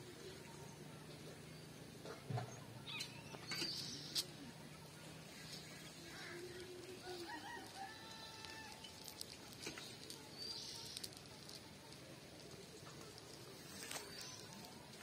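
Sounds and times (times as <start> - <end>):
faint clicks: 5.4 - 15.0
rooster crowing: 7.0 - 8.9.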